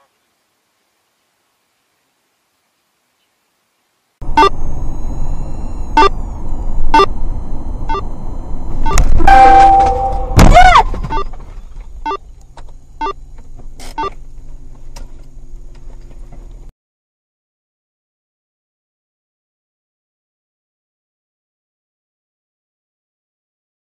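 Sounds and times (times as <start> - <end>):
car engine and road noise: 4.2 - 16.7
loud steady horn blast: 9.2 - 10.4.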